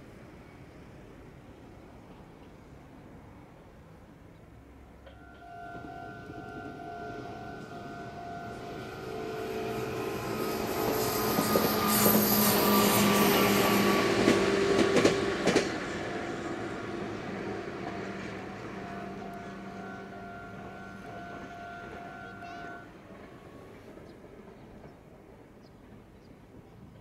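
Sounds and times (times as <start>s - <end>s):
electric train passing: 0.0s - 27.0s
wheels clacking over rail joints: 5.0s - 25.0s.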